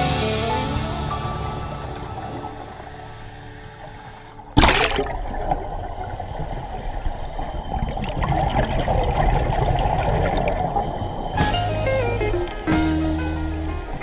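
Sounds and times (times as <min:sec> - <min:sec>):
underwater bubbling and gurgling: 0:00.8 - 0:14.0.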